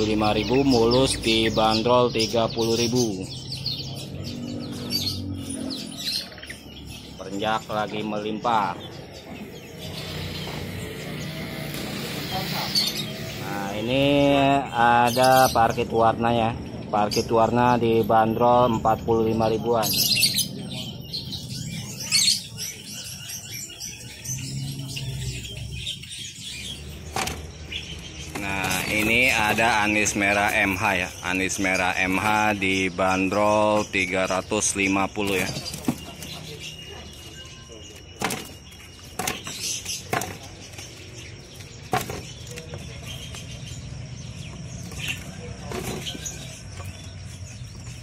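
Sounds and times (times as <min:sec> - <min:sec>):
birds fluttering in cages: 0:00.0 - 0:48.0
budgerigars chirping: 0:00.0 - 0:48.0
knocks on wooden cages: 0:26.9 - 0:30.4, 0:35.4 - 0:36.4, 0:38.1 - 0:43.5.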